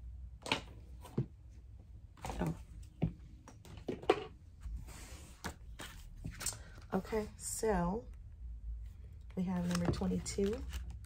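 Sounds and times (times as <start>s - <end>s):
low room hum: 0.0s - 11.0s
objects rustling and knocking: 2.2s - 6.5s.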